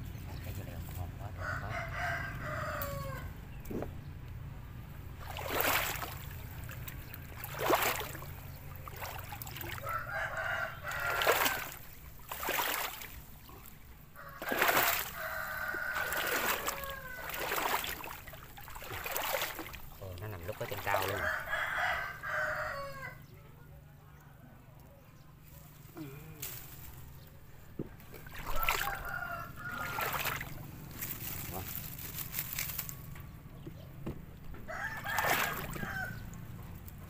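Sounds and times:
rooster crowing: 0:01.3 - 0:03.4, 0:09.7 - 0:11.9, 0:14.2 - 0:18.2, 0:20.8 - 0:23.3, 0:28.2 - 0:30.6, 0:34.6 - 0:36.4
water sloshing: 0:04.9 - 0:21.5, 0:26.9 - 0:37.0.

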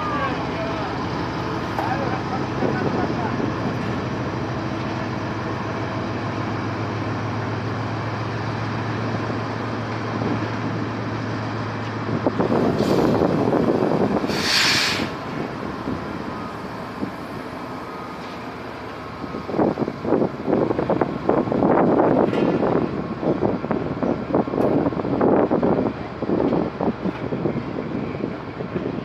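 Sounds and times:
diesel locomotive engine droning: 0:00.0 - 0:29.0
train coaches rumbling and clattering: 0:00.0 - 0:29.0
short hiss: 0:14.3 - 0:15.2.

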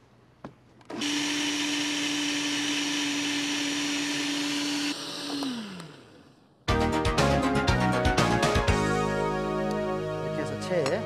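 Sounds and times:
blender motor humming: 0:00.9 - 0:06.6
blender switch click: 0:04.9 - 0:06.0.

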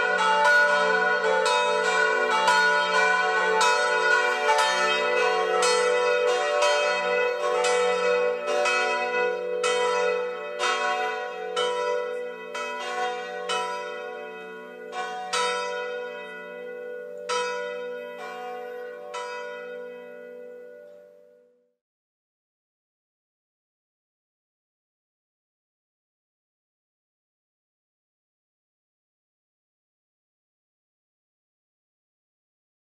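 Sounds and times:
church bells ringing: 0:00.0 - 0:21.5.

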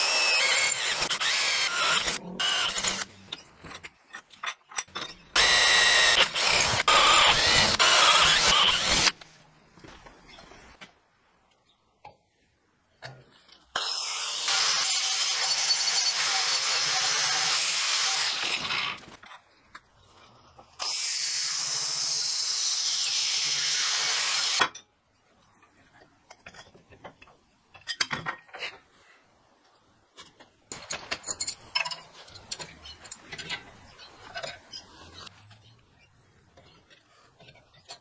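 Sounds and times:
angle grinder grinding steel: 0:00.0 - 0:03.1, 0:05.4 - 0:09.2, 0:13.8 - 0:19.0.

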